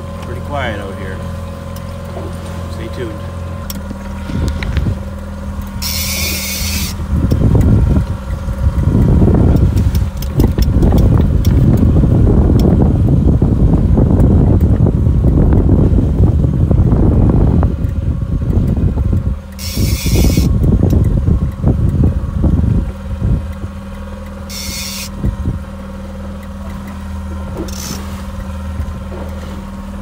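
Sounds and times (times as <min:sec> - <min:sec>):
wind and boat rumble on microphone: 0:00.0 - 0:30.0
fishing reel drag buzzing: 0:04.0 - 0:08.8, 0:19.5 - 0:21.1, 0:24.2 - 0:25.6, 0:27.6 - 0:28.5.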